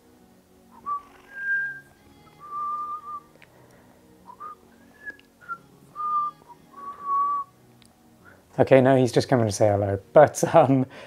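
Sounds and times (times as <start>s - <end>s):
short whistled notes: 0.7s - 3.2s, 4.3s - 7.5s.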